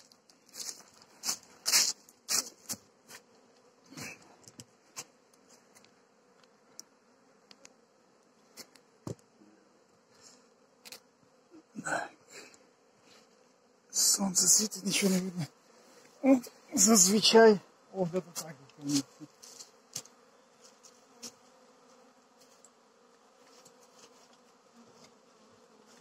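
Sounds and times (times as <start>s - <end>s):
bees buzzing: 0.0s - 26.0s.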